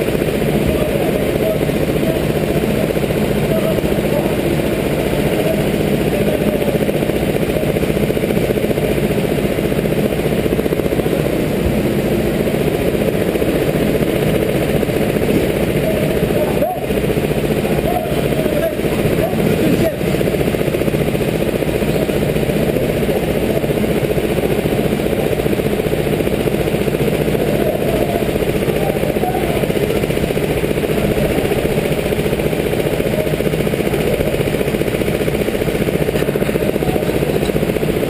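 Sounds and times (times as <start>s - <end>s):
kart engines idling: 0.0s - 38.0s.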